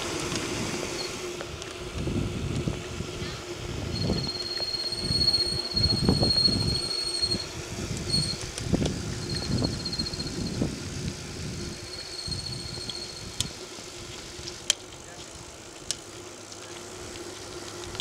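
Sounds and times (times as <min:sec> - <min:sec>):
thin high-pitched whine: 0:00.9 - 0:01.4, 0:03.2 - 0:14.2
wind buffeting microphone: 0:01.8 - 0:14.2.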